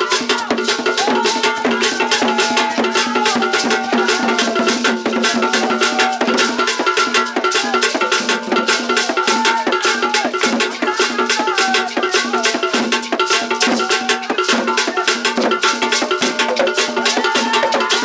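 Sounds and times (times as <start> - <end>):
rapid drum strokes: 0.0 - 18.0
voices singing: 0.0 - 18.0
sharp clapping-like hits: 10.1 - 11.8.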